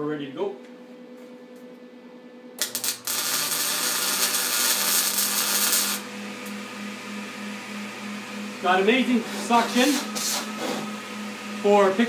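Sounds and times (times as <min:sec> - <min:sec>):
fume extractor motor humming: 0:02.5 - 0:12.0
welding arc crackling sizzle: 0:02.6 - 0:06.6
welding arc popping: 0:02.6 - 0:06.6.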